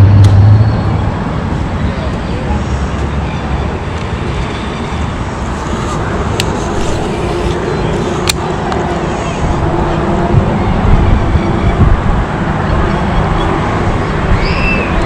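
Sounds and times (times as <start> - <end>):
wind rumble on microphone: 3.6 - 15.0.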